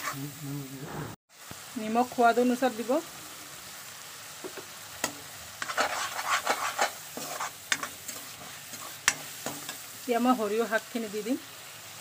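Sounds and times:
low sizzle of cooking paste: 0:00.0 - 0:12.0
steel spoon scraping pan: 0:05.0 - 0:09.9.

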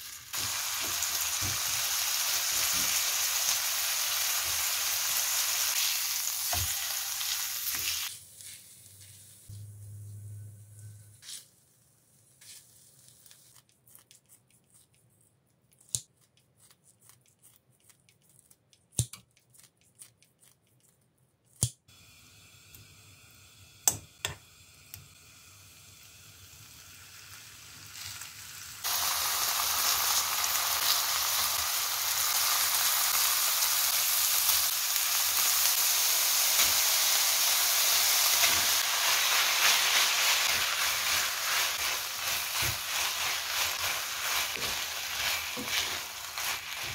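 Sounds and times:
food sizzling in wok: 0:00.0 - 0:10.4, 0:21.9 - 0:46.9.

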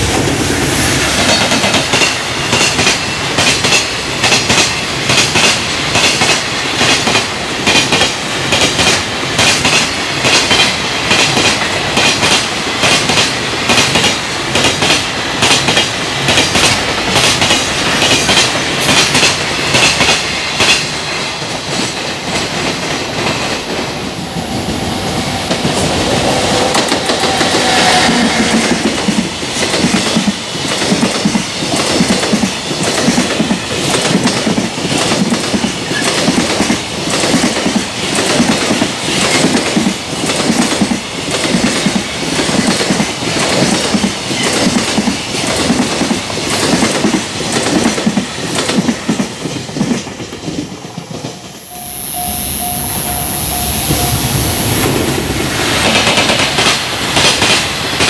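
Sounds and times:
freight train rolling past: 0:00.0 - 0:58.0.

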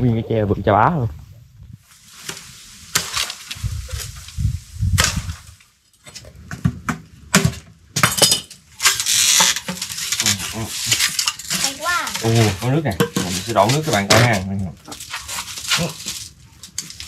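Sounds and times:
rustling: 0:01.8 - 0:06.4, 0:08.7 - 0:17.0.

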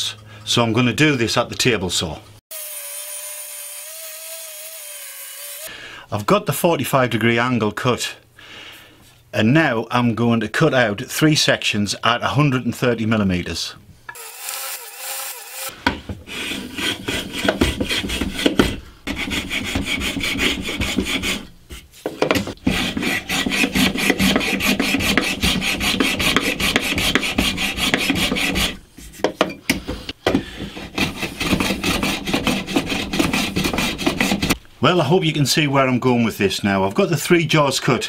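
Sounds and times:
hand tool rasping on wood: 0:16.3 - 0:21.4, 0:22.6 - 0:28.8, 0:30.7 - 0:34.6.

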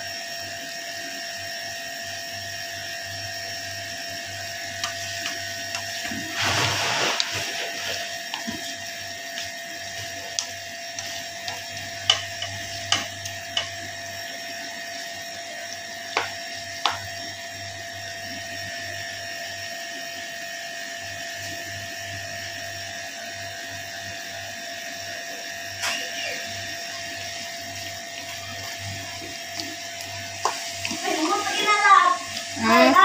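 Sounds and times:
whining machine hum: 0:00.0 - 0:33.0
spatula stirring in frying pan: 0:04.1 - 0:17.3, 0:26.6 - 0:33.0
spatula knocking against pan: 0:11.0 - 0:13.8.

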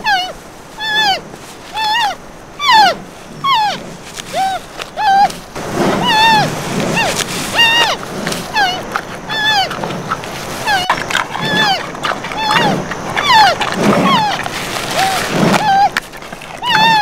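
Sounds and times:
red panda squealing calls: 0:00.0 - 0:17.0.

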